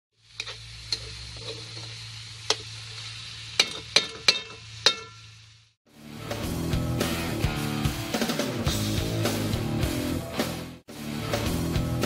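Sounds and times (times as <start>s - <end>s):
faint sizzle: 0.1s - 5.8s
spatula clinking on wok: 3.6s - 5.4s
guitar-led rock music: 5.9s - 12.0s.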